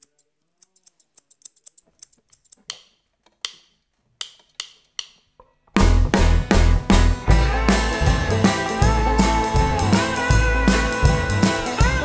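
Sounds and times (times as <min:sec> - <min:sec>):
loud rock band: 0:05.8 - 0:12.0.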